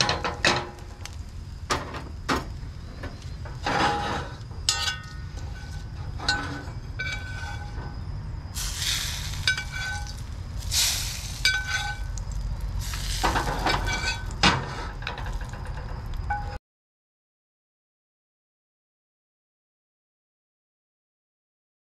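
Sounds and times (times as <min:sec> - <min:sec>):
metal spoon scraping a skillet: 0:03.6 - 0:15.4
low rumble: 0:04.5 - 0:14.4
pan sizzling: 0:08.6 - 0:15.4.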